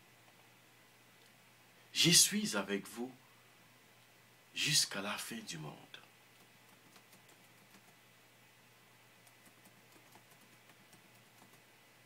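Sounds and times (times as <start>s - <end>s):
faint low hum: 0.0s - 12.0s.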